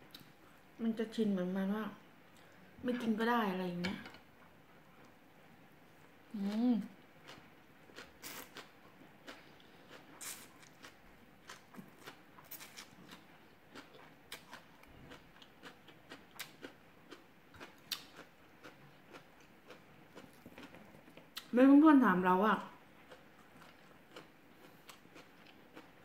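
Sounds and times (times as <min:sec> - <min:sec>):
noodles slurped and chewed: 0:07.2 - 0:21.4.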